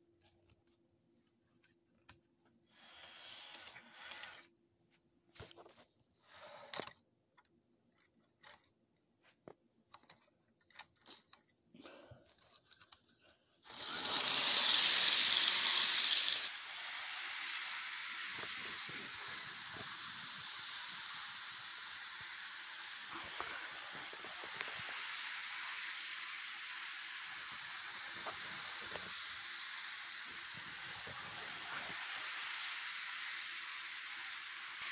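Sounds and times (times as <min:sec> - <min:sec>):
model train whirring: 0:02.6 - 0:04.5, 0:13.6 - 0:34.9.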